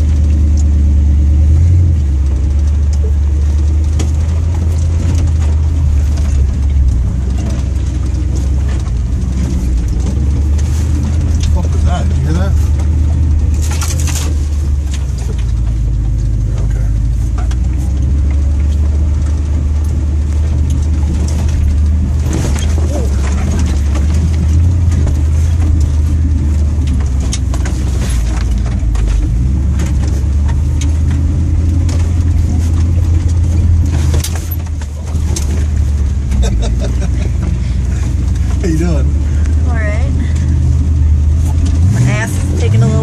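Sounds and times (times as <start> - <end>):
vehicle engine droning: 0.0 - 43.0
vehicle knocks and clatters: 0.0 - 43.0.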